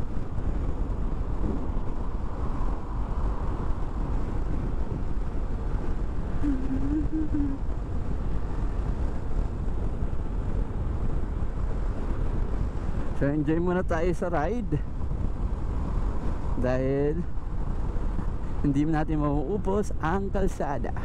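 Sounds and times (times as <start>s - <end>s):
wind rushing over microphone: 0.0s - 21.0s
short wavering tone: 6.4s - 7.6s.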